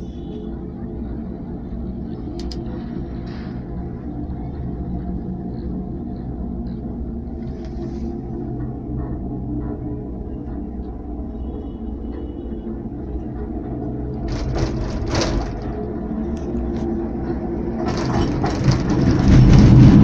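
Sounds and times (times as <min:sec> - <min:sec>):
vehicle engine rumbling: 0:00.0 - 0:20.0
cabin and window rattling: 0:14.2 - 0:15.9, 0:17.8 - 0:20.0.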